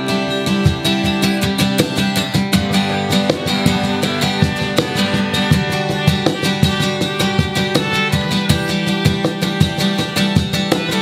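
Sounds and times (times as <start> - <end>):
acoustic guitar strumming: 0.0 - 11.0
cajon beat: 0.0 - 11.0
trumpet melody: 2.7 - 11.0.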